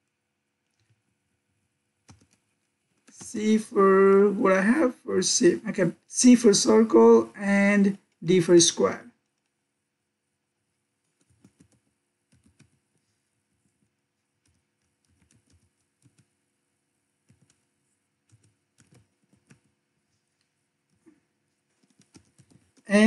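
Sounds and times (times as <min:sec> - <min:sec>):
faint keyboard typing: 0:00.0 - 0:03.4, 0:09.1 - 0:09.7, 0:10.5 - 0:23.0.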